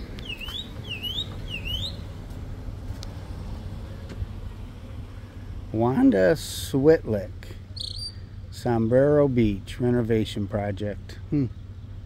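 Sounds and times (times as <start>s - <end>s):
bird whistling: 0.0s - 2.1s, 7.8s - 8.2s.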